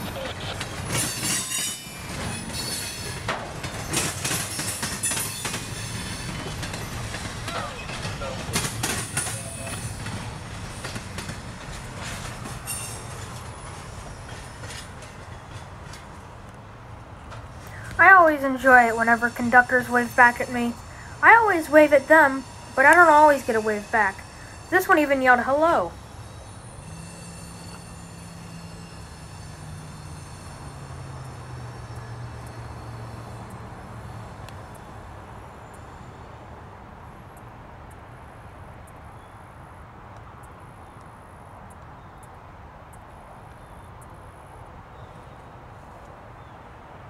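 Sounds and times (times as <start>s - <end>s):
background noise: 0.0s - 47.0s
train wheels rumbling on rails: 0.0s - 47.0s
distant engine drone: 5.4s - 36.0s.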